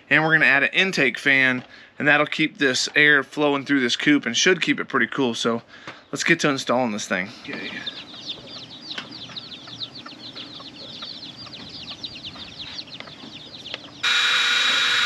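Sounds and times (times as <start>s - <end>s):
chicks peeping: 0.0s - 15.0s
power drill whining: 14.0s - 15.0s.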